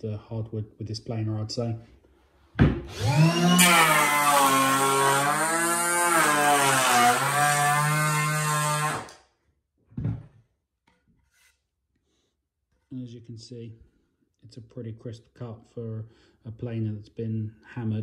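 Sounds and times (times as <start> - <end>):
power planer motor whining: 2.9 - 9.1.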